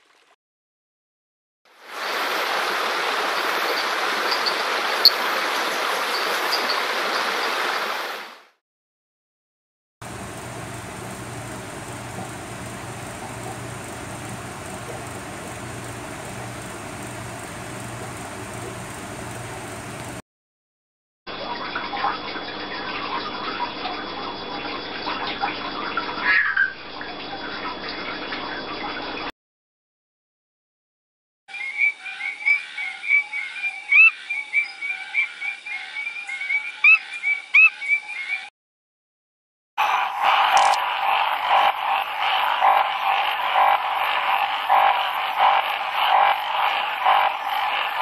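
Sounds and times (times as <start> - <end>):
treefrogs chorus: 10.0 - 20.2, 31.6 - 38.4, 39.8 - 48.0
water spraying and dripping: 10.0 - 20.2
louder frog call: 10.1 - 20.2, 39.8 - 48.0
small clicks and chirps: 10.2 - 20.2.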